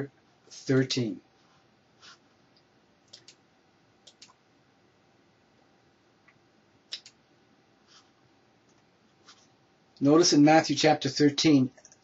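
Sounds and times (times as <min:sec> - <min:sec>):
computer mouse clicks: 0:02.6 - 0:03.4, 0:04.0 - 0:04.4, 0:06.2 - 0:07.2, 0:11.7 - 0:12.0.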